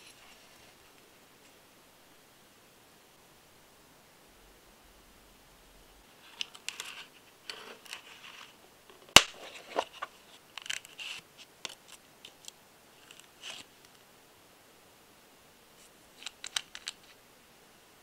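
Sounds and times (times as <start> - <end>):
small plastic clicks: 16.2 - 17.1.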